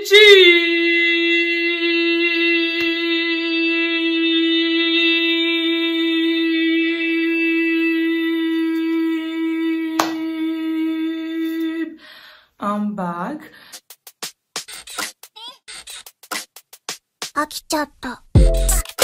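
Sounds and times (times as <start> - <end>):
woman singing a long note: 0.0 - 12.0.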